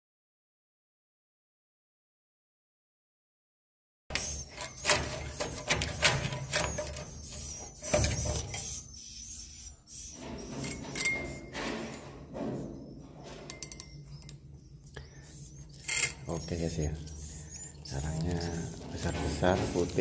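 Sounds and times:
metal scraper scraping wood: 4.1s - 14.2s, 15.0s - 20.0s.

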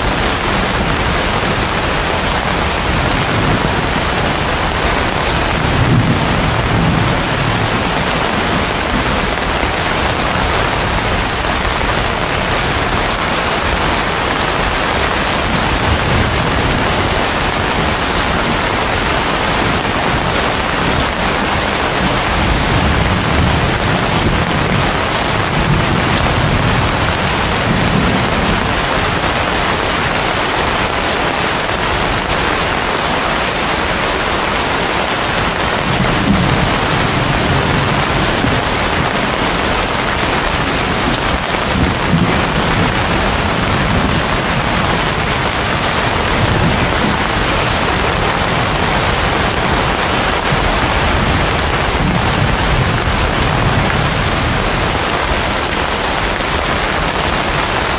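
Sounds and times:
heavy rain pouring: 0.0s - 57.9s.

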